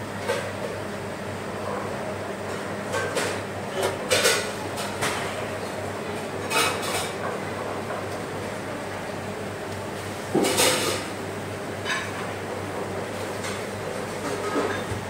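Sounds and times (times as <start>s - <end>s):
dishes and utensils clattering: 2.5s - 5.2s, 6.4s - 7.3s, 10.4s - 11.0s, 13.4s - 15.0s.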